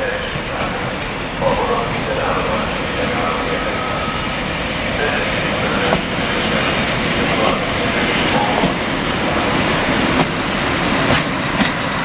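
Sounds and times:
diesel locomotive rumble: 0.0s - 12.0s
wheels clicking over rail joints: 10.1s - 12.0s.

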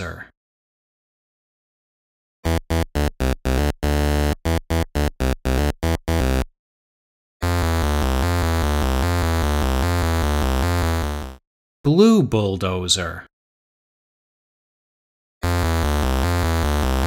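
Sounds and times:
low buzzy synth line: 2.5s - 6.4s, 7.4s - 11.4s, 15.4s - 17.0s.

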